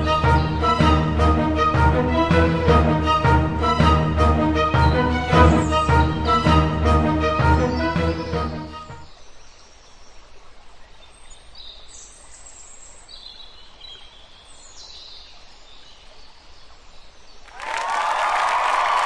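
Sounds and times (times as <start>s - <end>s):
background music: 0.0s - 9.1s
faint outdoor hiss: 0.0s - 19.0s.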